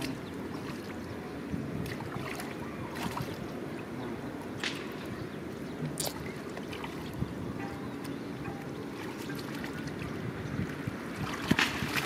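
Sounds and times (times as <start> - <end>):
water splashes: 0.0 - 12.0
hands sloshing through muddy water: 1.7 - 3.5, 8.9 - 12.0.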